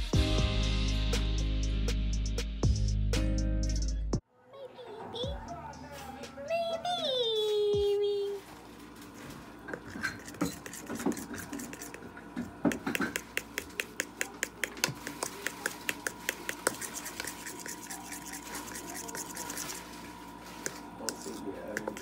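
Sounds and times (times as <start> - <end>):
metal spoon stirring batter in bowl: 9.7 - 12.1, 12.7 - 19.9, 20.6 - 22.0.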